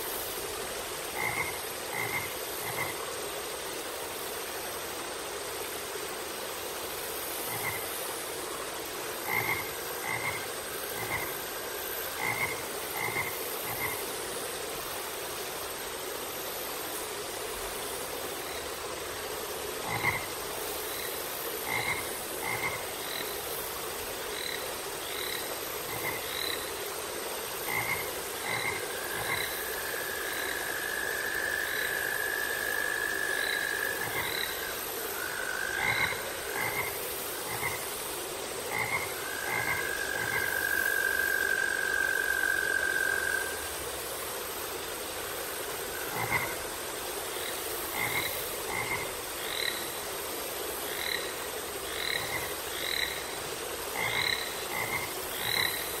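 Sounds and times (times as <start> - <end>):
frogs croaking: 0.0 - 56.0
long steady frog trill: 27.7 - 37.8.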